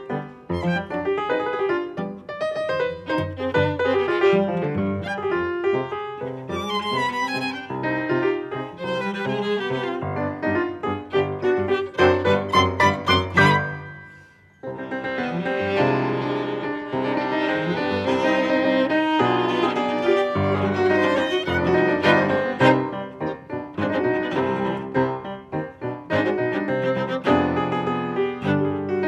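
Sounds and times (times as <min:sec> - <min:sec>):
piano trio chamber music: 0:00.0 - 0:29.0.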